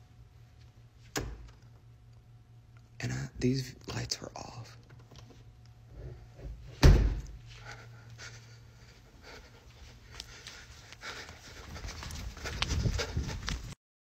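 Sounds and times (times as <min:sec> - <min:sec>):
low steady hum: 0:00.0 - 0:13.8
loud thump: 0:06.8 - 0:07.3.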